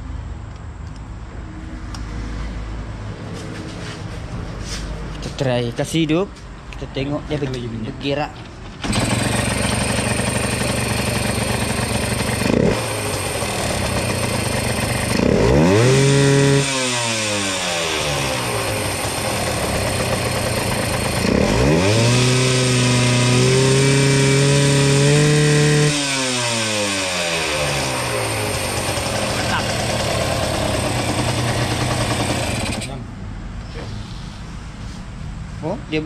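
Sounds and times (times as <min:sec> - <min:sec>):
motorcycle engine idling and revving: 0:08.5 - 0:33.5.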